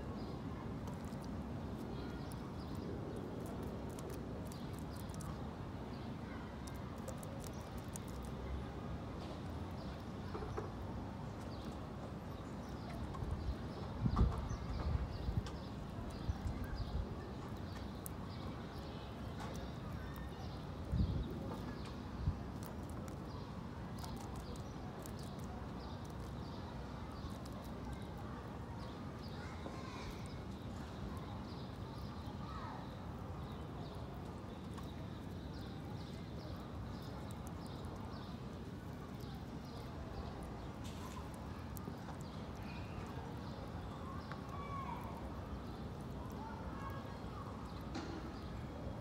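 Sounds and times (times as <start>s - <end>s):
wind rumble on microphone: 12.9s - 17.3s, 20.8s - 22.7s.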